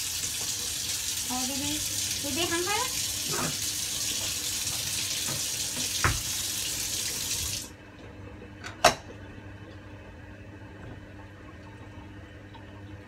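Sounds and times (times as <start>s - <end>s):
water running from tap: 0.0s - 7.8s.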